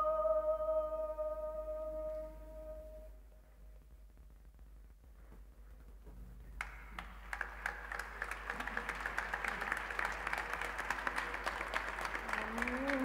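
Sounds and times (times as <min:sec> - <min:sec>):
audience applause: 0:06.6 - 0:13.0.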